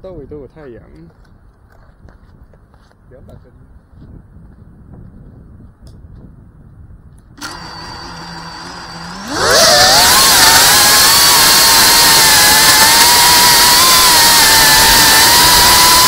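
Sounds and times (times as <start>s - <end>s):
drone motors whining: 7.4s - 16.0s.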